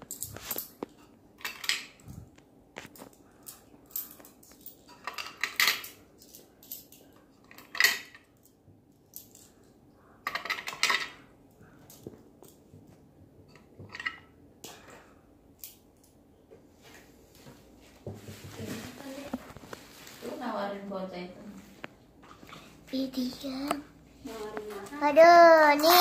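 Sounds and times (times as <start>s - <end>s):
metal coins clinking: 3.4s - 7.0s.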